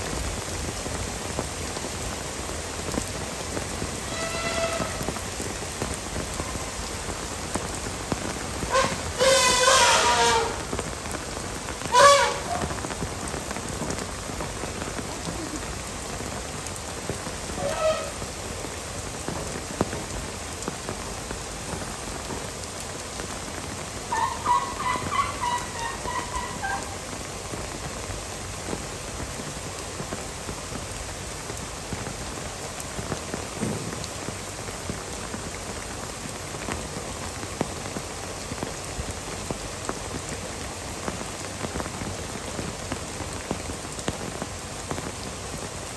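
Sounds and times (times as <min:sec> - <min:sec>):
heavy rain: 0:00.0 - 0:45.9
pitched calls: 0:24.0 - 0:27.2.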